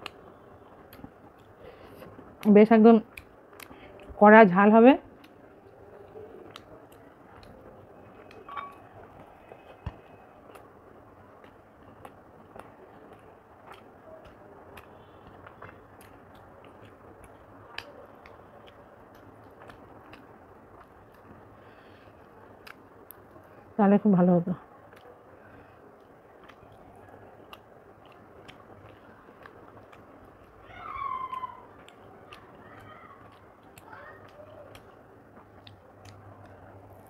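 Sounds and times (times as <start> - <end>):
small clicks and smacks: 0.0 - 4.2, 5.1 - 23.6, 24.8 - 37.0
person chewing: 11.4 - 22.8, 26.0 - 37.0.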